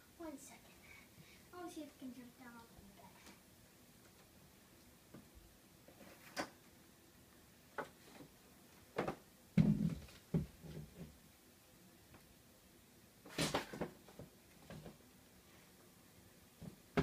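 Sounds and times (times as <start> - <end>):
knocks and thumps on shelf: 9.0 - 11.1.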